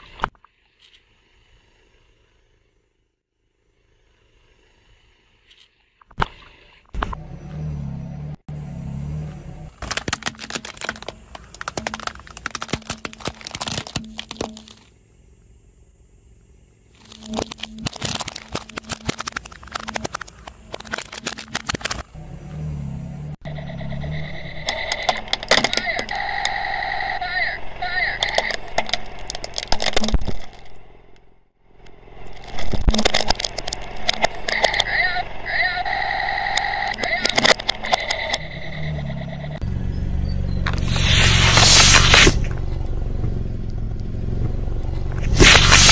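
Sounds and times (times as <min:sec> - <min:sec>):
plastic toys cracking under a tyre: 0:09.8 - 0:14.9, 0:17.0 - 0:22.0, 0:24.6 - 0:26.6, 0:27.9 - 0:31.2, 0:32.2 - 0:35.2, 0:36.5 - 0:38.4, 0:45.2 - 0:45.9.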